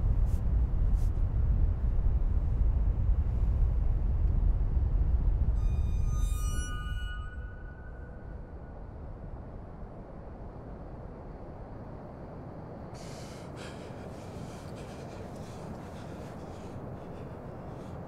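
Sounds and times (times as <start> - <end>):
beach ambience rumble: 11.6 - 18.0
man gasping and breathing hard: 13.0 - 18.0.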